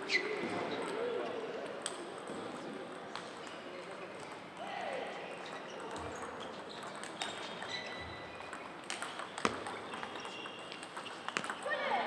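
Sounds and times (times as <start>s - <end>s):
faint clicks from neighbouring tables: 0.5s - 4.6s, 5.3s - 11.7s
table tennis ball clicking: 8.4s - 11.7s.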